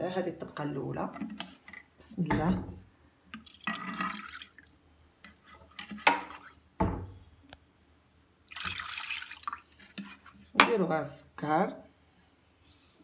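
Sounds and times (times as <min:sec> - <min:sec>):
milk pouring into saucepan: 0:03.4 - 0:04.8, 0:08.5 - 0:10.4.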